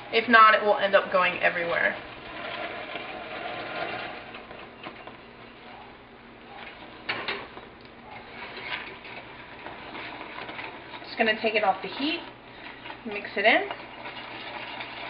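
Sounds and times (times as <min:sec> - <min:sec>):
caramel bubbling: 0:00.0 - 0:15.0
wooden spoon stirring saucepan: 0:00.0 - 0:15.0
cream pouring: 0:12.4 - 0:15.0.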